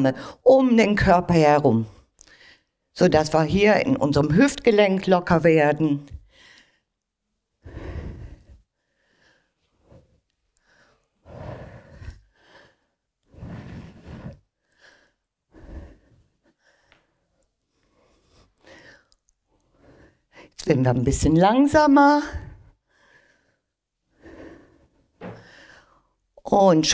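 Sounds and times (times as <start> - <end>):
woman breathing heavily: 6.2 - 7.0, 7.6 - 20.6, 22.3 - 26.2.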